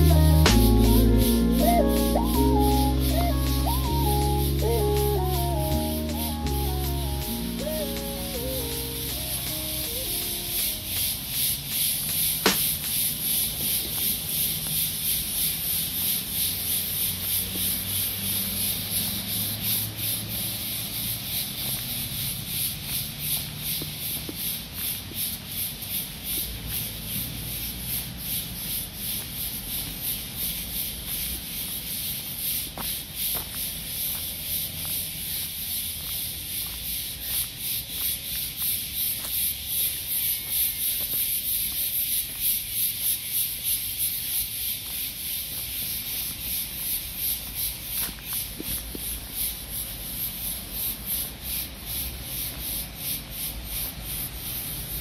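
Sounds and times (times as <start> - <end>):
footsteps walking: 32.8 - 39.4.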